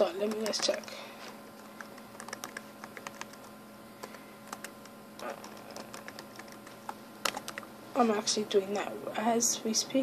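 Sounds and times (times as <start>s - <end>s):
laptop keyboard typing: 0.0s - 7.7s.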